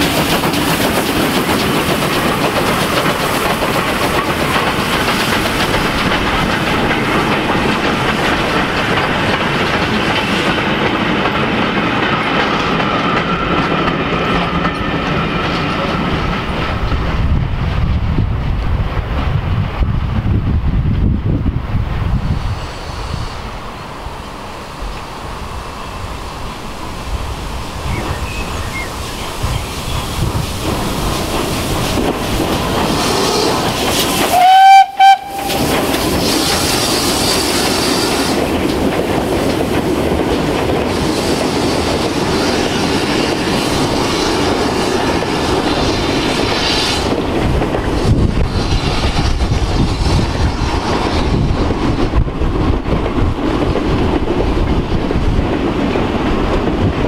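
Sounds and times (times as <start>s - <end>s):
train wagons rumbling on rails: 0.0s - 57.0s
steam locomotive whistle: 33.0s - 33.6s, 34.3s - 38.4s.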